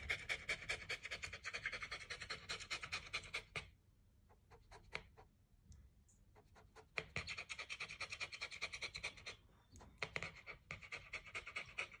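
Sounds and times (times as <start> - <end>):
dog panting: 0.0 - 3.7, 6.4 - 12.0.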